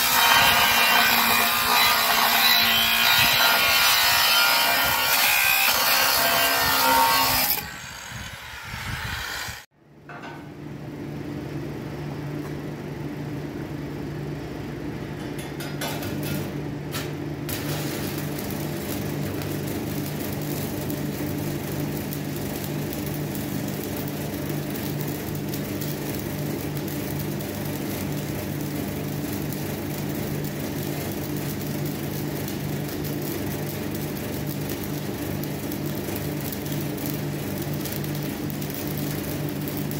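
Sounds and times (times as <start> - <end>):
arc welding crackle: 0.0 - 9.6, 15.9 - 39.9
angle grinder cutting steel: 0.0 - 9.7.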